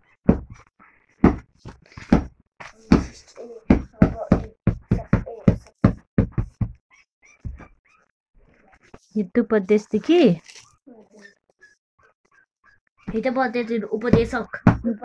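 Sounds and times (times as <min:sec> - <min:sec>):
boy speaking in clipped syllables: 0:02.7 - 0:05.8, 0:09.0 - 0:11.4
knocks: 0:02.9 - 0:06.8, 0:07.4 - 0:07.7, 0:14.0 - 0:14.9.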